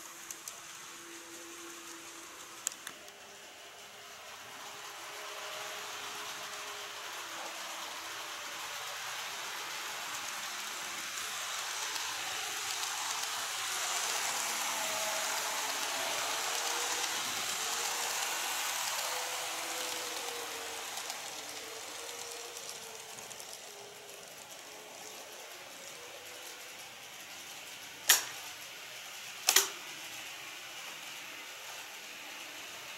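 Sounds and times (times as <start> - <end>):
model train wheels rolling on rails: 0.0 - 32.9.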